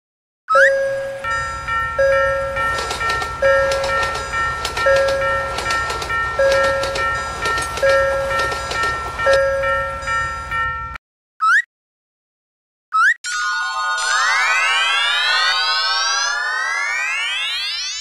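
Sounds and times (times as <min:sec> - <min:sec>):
level crossing bell ringing: 0:00.5 - 0:11.0
train rumble and rail clacks: 0:00.9 - 0:11.0.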